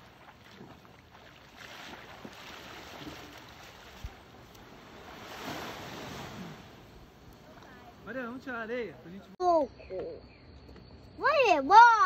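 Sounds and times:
water washing at shoreline: 0.0s - 8.7s.

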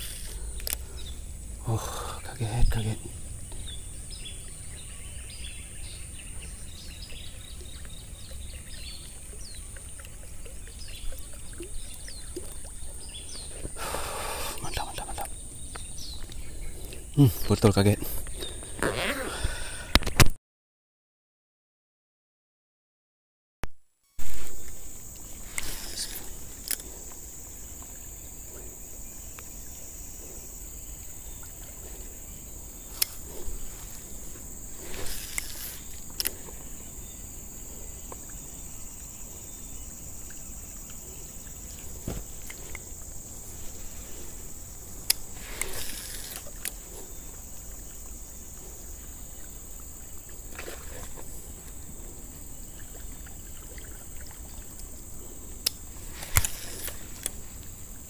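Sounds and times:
high insect drone: 0.0s - 20.1s, 24.0s - 58.0s
fishing rod casting sweeps: 24.2s - 26.8s, 32.8s - 36.5s, 45.0s - 46.8s, 56.0s - 57.4s
fishing reel clicks: 25.5s - 26.8s, 35.0s - 36.4s, 45.0s - 46.8s, 55.6s - 57.4s.

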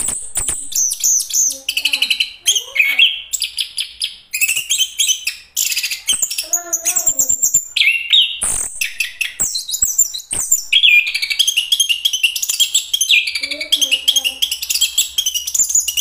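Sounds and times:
sharp clicks: 0.0s - 2.1s, 8.4s - 12.3s.

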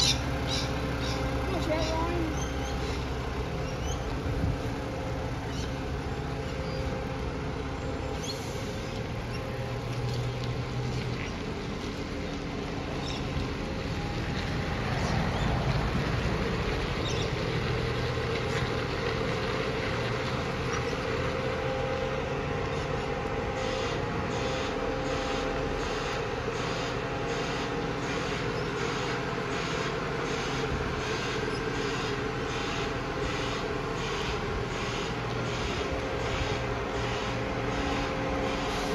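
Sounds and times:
diesel truck engine running: 0.0s - 38.9s
reversing alarm pulses: 23.4s - 38.9s.

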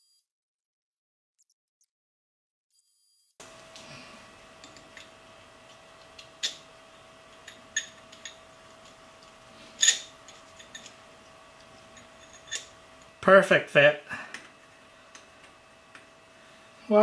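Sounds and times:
faint steady hum: 3.4s - 17.0s.

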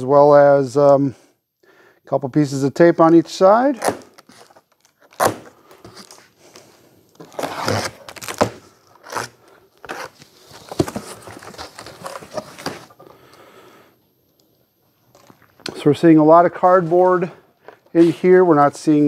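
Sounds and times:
plastic packing bands snapping: 3.8s - 6.1s
cardboard flaps tearing: 3.8s - 6.3s, 7.2s - 12.9s.

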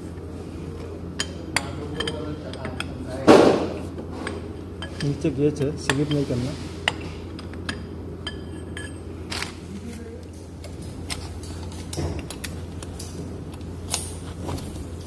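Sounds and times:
steady low hum: 0.0s - 15.0s
metal clinks and taps: 6.9s - 9.1s.

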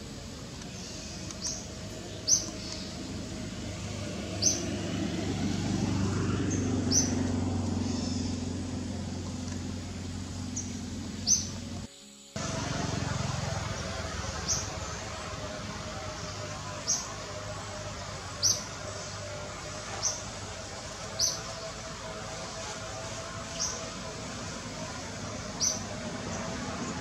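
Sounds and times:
outdoor background hiss: 0.0s - 27.0s
bird chirping: 0.6s - 3.5s, 10.4s - 11.8s, 12.4s - 21.8s.

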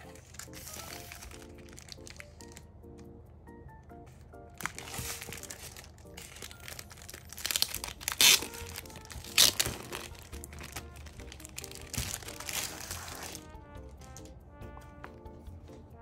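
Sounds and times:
plastic wrapping crinkling: 0.0s - 2.7s, 4.5s - 14.3s
soft background music: 0.0s - 16.0s.

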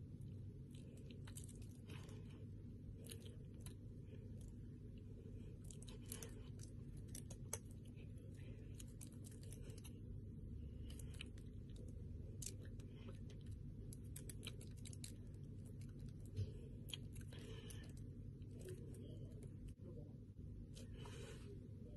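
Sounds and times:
low room hum: 0.0s - 21.9s.

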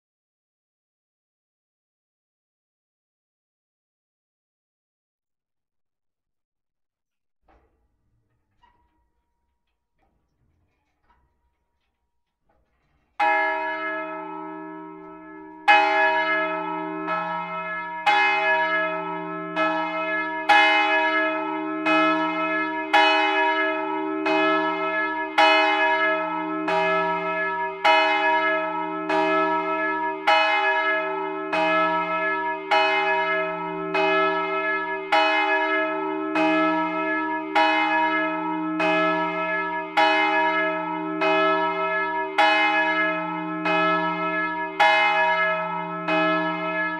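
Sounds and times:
large church bell ringing: 13.2s - 46.9s.

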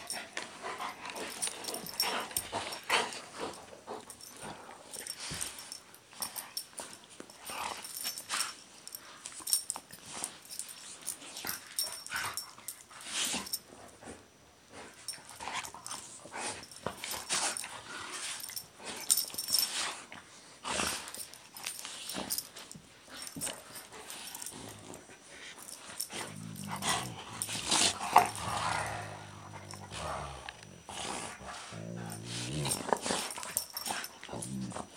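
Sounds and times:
dogs breathing noisily: 0.0s - 34.9s
dogs growling: 24.0s - 34.9s.

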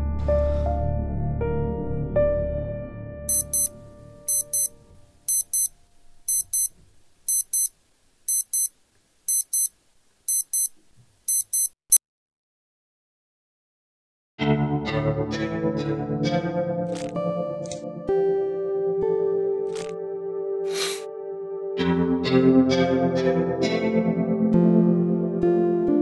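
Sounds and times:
digital alarm clock beeping: 3.3s - 3.7s, 4.3s - 4.7s, 5.3s - 5.7s, 6.3s - 6.7s, 7.3s - 7.7s, 8.3s - 8.7s, 9.3s - 9.7s, 10.3s - 10.7s, 11.3s - 12.0s.

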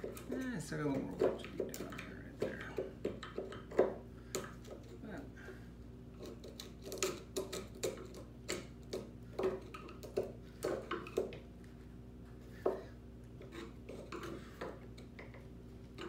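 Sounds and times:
steady low hum: 0.0s - 16.0s
hand tool scraping wood: 12.4s - 15.3s.

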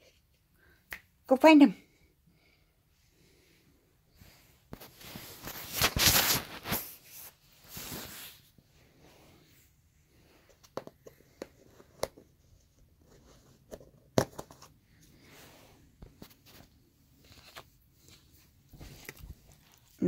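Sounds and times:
soft rustling: 3.1s - 10.6s, 14.8s - 20.0s.

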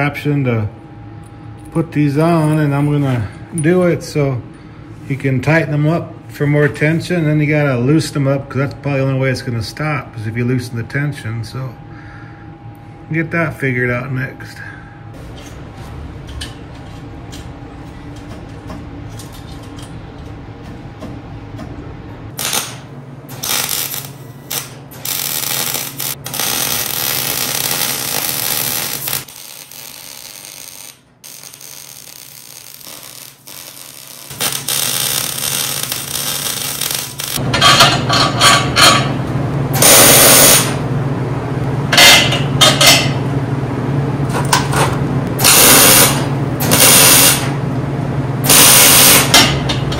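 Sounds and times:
steady low hum: 0.0s - 49.9s
arc welder hissing and crackling: 22.3s - 37.4s, 39.7s - 40.8s, 45.4s - 47.6s, 48.4s - 49.7s
metalworking tool noise: 22.4s - 39.2s, 41.9s - 43.2s.

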